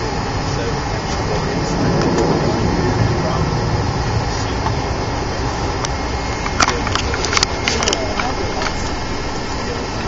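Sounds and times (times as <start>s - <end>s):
airliner engines and cabin air: 0.0s - 10.0s
sharp clicks and rattles: 1.1s - 8.9s.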